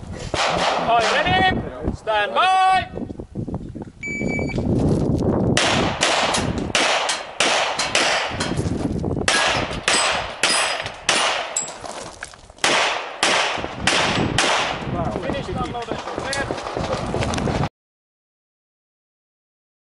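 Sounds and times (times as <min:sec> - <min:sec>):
handgun shots fired rapidly: 0:05.6 - 0:08.5, 0:09.3 - 0:11.6, 0:12.6 - 0:14.9.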